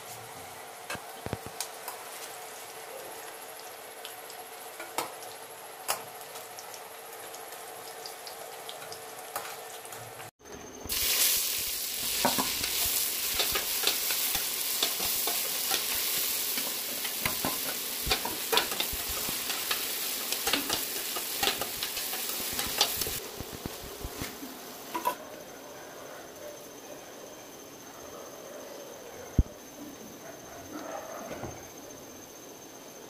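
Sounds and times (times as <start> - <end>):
onions sizzling in hot oil: 0.6 - 10.3, 10.9 - 25.2.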